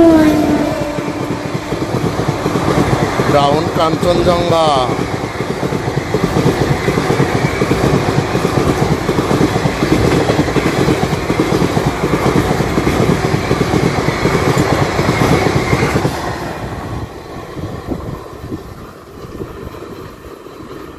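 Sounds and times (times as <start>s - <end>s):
wheels clattering over rail joints: 0.0s - 16.3s
train rushing past: 0.0s - 20.9s.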